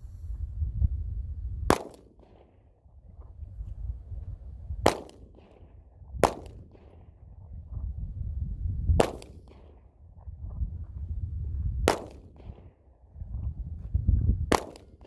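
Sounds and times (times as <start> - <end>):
wind rumble on microphone: 0.0 - 15.0
handgun shots: 1.7 - 2.5, 4.8 - 7.0, 9.0 - 9.8, 11.9 - 12.6, 14.5 - 15.0.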